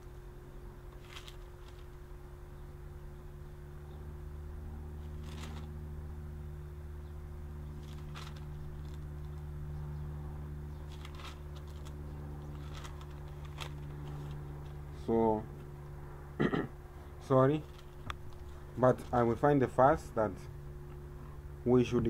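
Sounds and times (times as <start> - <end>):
steady low hum: 0.0 - 22.0
faint handling rustles: 0.9 - 2.0, 5.0 - 5.8, 7.7 - 9.4, 10.8 - 15.9, 17.0 - 19.5.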